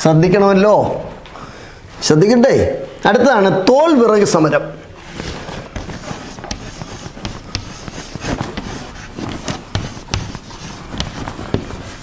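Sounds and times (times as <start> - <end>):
chalk scratching on blackboard: 5.2 - 12.0.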